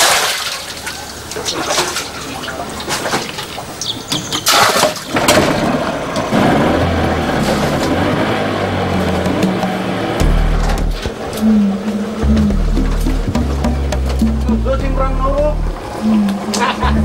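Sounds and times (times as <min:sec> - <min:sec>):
outboard motor running: 0:05.2 - 0:17.0
knocks: 0:12.2 - 0:15.5.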